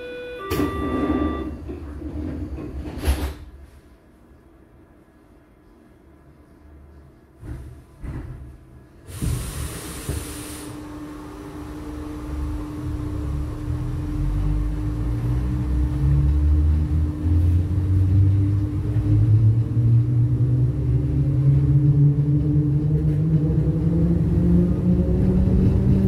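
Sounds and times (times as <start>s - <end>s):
train running rumble and hum: 0.0s - 3.6s, 7.0s - 26.0s
air hiss: 9.0s - 10.8s.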